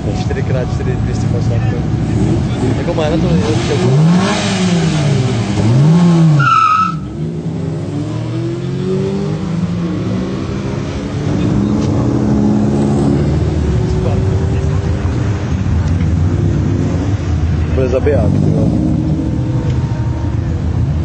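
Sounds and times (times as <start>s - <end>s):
car engine revving and accelerating: 0.0s - 21.0s
tyre squeal: 6.4s - 7.1s.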